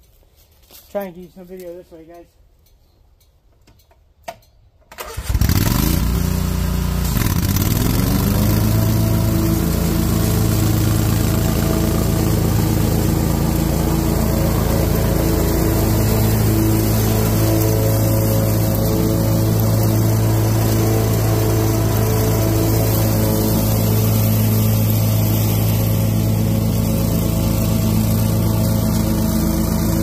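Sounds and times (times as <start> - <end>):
small engine starting and running: 4.8 - 30.0.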